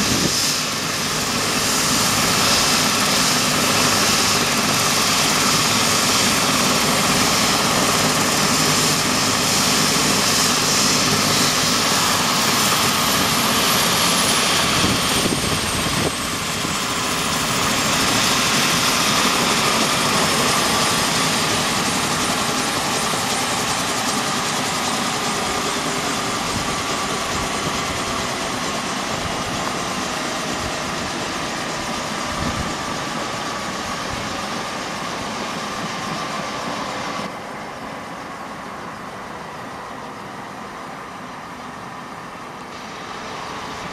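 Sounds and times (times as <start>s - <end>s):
helicopter turbine whine winding down: 0.0s - 43.9s.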